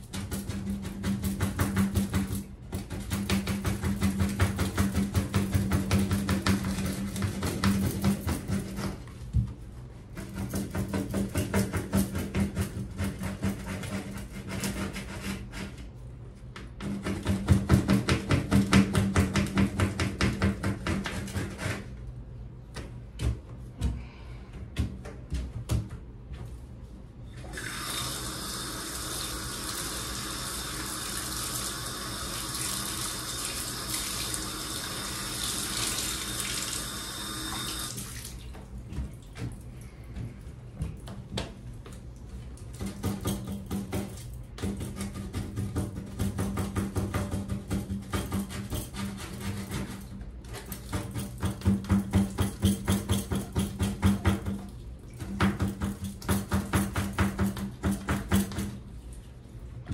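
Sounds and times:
brush scrubbing a bathtub: 0.0 - 22.4, 44.6 - 59.9.

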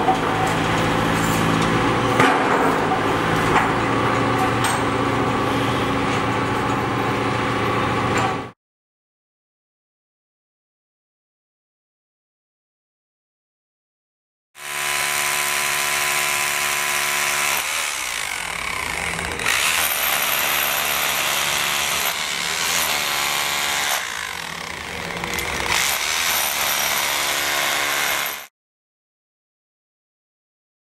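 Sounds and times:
demolition hammer breaking concrete: 0.1 - 4.0, 14.6 - 28.5.

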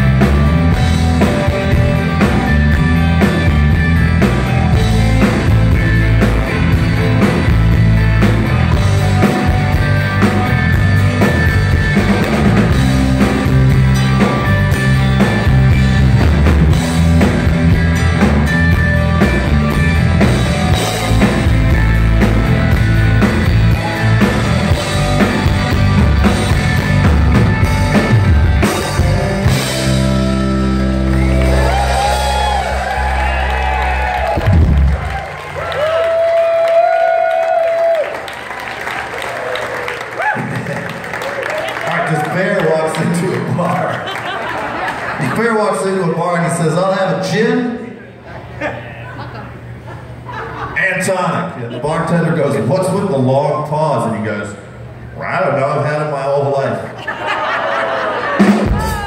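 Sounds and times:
drum kit: 0.0 - 36.9, 58.3 - 59.0
bass guitar: 0.0 - 38.2, 58.3 - 59.0
electric guitars: 0.0 - 45.2.

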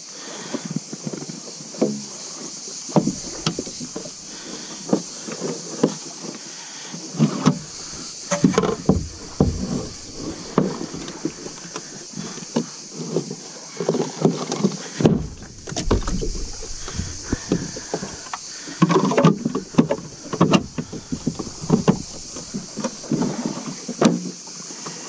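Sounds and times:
hands handling fittings on kayak: 3.0 - 4.8, 7.5 - 11.9, 15.0 - 18.5, 19.1 - 23.4
heavy hollow thumps: 3.0 - 5.0, 7.5 - 12.0, 15.0 - 23.3.

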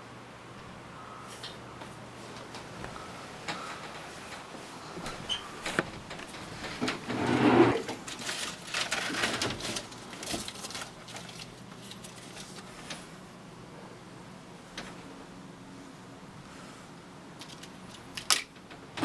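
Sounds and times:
rummaging through things on a desk: 1.3 - 13.3, 17.3 - 19.0.

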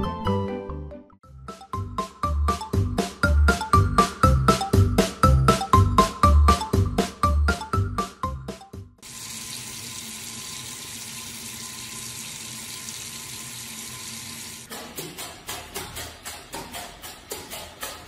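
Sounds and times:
light background music with a quick beat: 1.2 - 9.0, 14.7 - 18.0
water running from a tap into a sink: 9.0 - 14.7.

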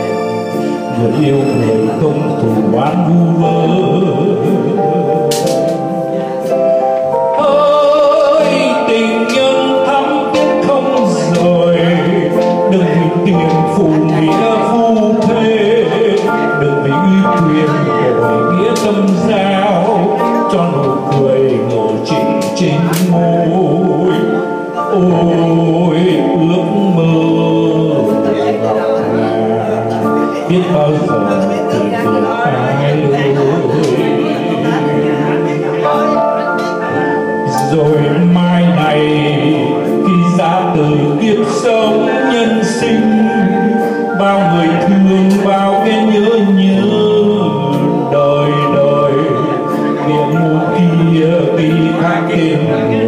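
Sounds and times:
electronic keyboard accompaniment: 0.0 - 53.0
man singing through microphone: 0.0 - 53.0.

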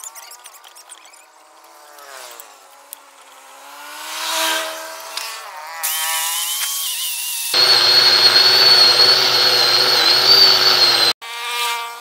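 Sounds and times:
engine hum: 7.6 - 11.2.

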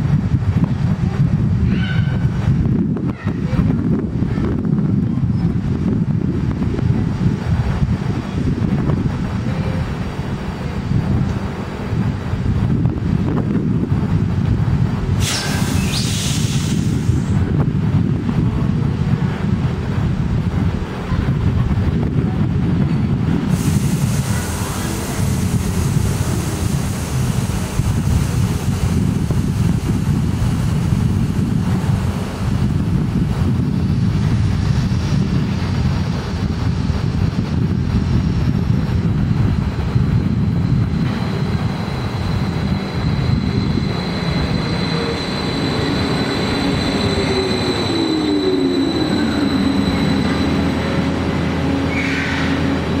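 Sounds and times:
freight train rumble: 0.0 - 53.0
thin high squeal: 43.0 - 50.9.

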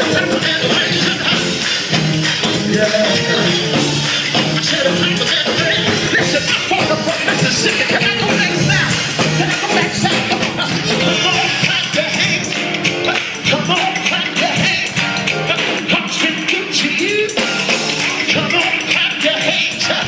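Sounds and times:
gospel choir singing: 0.0 - 12.5
driving beat: 0.0 - 20.0.

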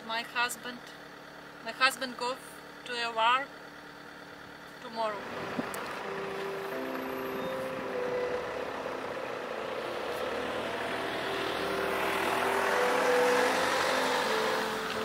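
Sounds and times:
minibus driving past: 3.6 - 15.0.

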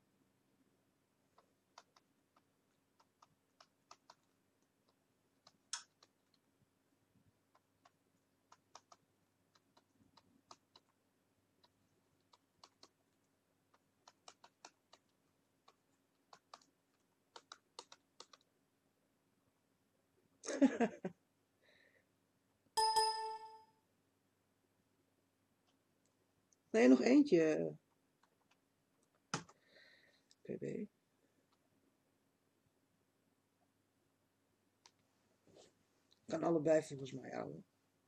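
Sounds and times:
typing on computer keyboard: 1.4 - 6.4, 7.5 - 11.0, 11.6 - 13.0, 13.7 - 18.5.

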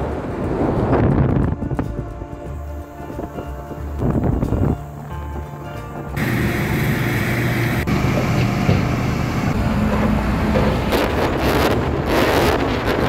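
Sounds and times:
heavy vehicle engines running: 6.2 - 13.0.

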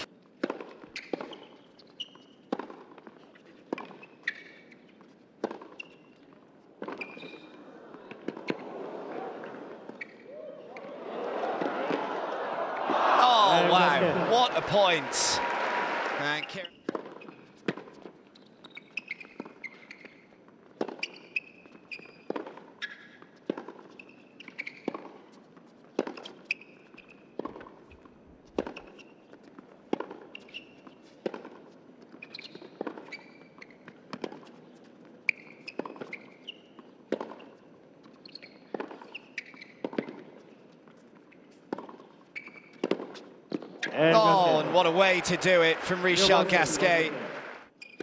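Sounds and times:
shoe squeaks on court: 0.8 - 7.6, 9.9 - 10.3, 16.6 - 25.4, 26.1 - 27.4, 30.2 - 31.2, 32.1 - 44.0, 47.8 - 48.0.

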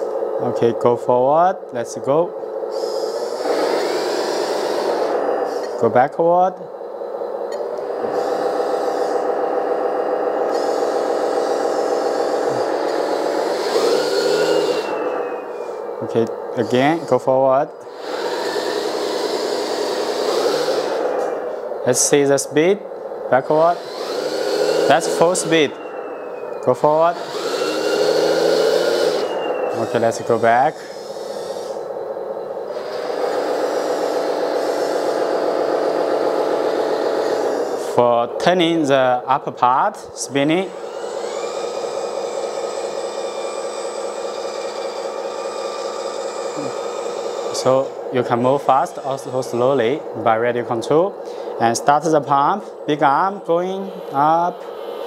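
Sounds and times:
toy excavator drive whirring: 2.7 - 5.8, 7.5 - 17.2, 17.8 - 21.5, 23.4 - 32.0, 32.7 - 38.0, 40.6 - 50.0.

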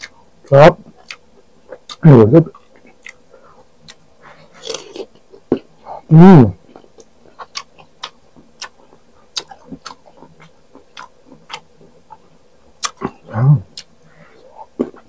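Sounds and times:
person humming: 13.0 - 13.9.

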